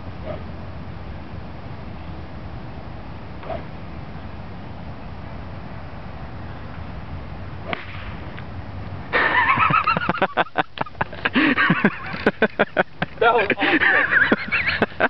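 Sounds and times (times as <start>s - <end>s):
exploding golf ball crack: 7.6s - 8.5s
loud laughter: 9.1s - 15.0s.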